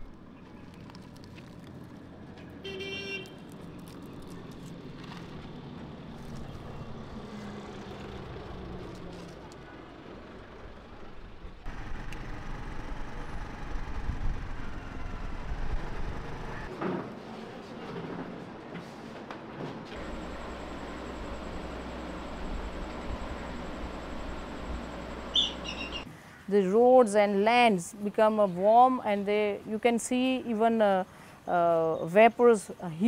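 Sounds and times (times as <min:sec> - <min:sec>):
vehicles passing on road: 0:00.0 - 0:19.2, 0:19.8 - 0:26.5
vehicle horn toot: 0:02.6 - 0:03.4.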